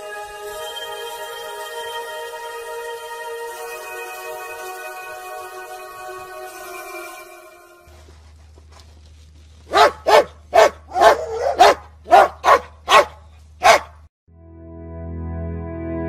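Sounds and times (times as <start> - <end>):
dog barking: 9.7 - 14.0.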